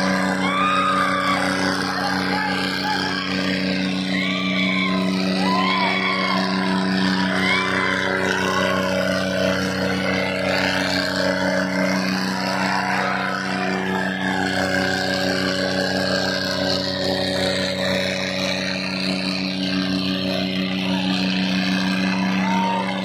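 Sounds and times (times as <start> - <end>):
crowd shouting: 0.0 - 16.8, 20.3 - 23.0
diesel tractor engines straining: 0.0 - 23.0.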